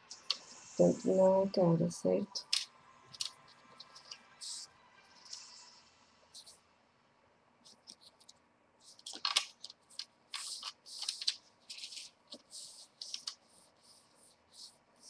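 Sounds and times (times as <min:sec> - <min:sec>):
paper rustling: 0:02.4 - 0:04.6, 0:07.6 - 0:15.0.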